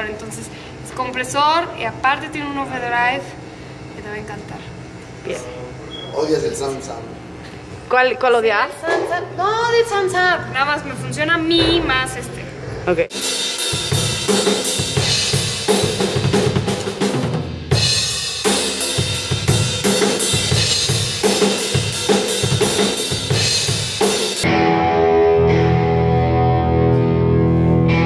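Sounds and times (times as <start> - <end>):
drum kit rock beat: 11.6 - 25.1.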